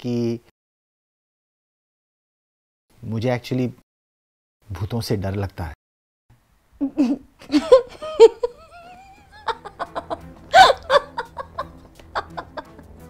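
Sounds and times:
person laughing: 0:06.8 - 0:12.9.

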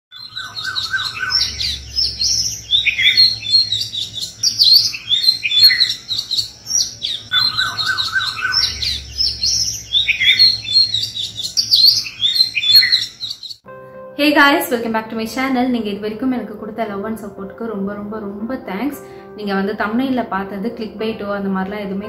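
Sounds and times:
songbirds chirping: 0:00.1 - 0:13.6.

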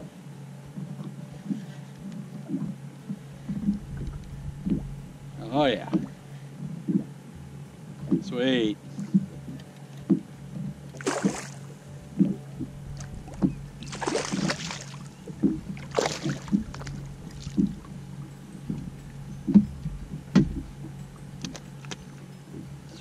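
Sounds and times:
low steady hum: 0:00.0 - 0:23.0
fish splashing at water surface: 0:11.0 - 0:11.7, 0:13.0 - 0:17.9.

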